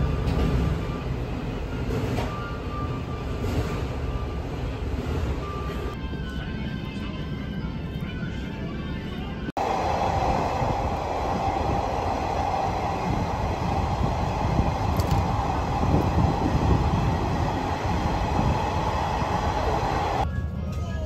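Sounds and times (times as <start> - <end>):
train rumble from inside car: 0.0 - 21.0.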